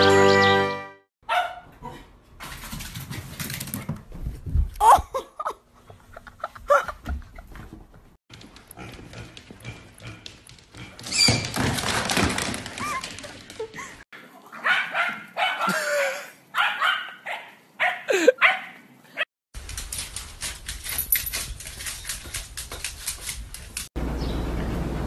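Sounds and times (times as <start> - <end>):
dogs barking: 1.2 - 2.0, 14.4 - 19.3
dog yelps sliding in pitch: 16.6 - 18.8.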